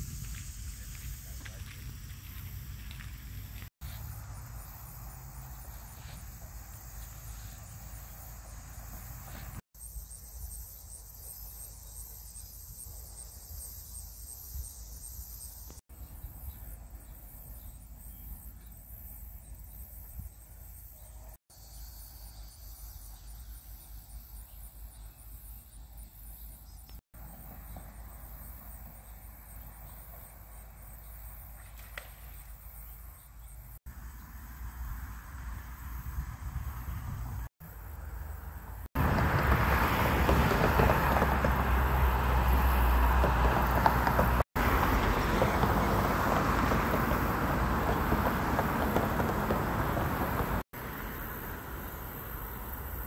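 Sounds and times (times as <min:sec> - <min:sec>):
wind rumble on microphone: 0:00.0 - 0:03.6, 0:34.6 - 0:37.5
insects chirping: 0:00.0 - 0:53.0.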